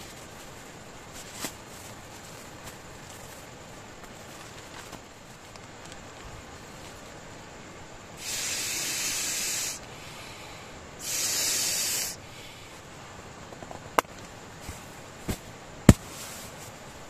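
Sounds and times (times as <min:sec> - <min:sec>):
hissing bursts: 0:08.2 - 0:12.5.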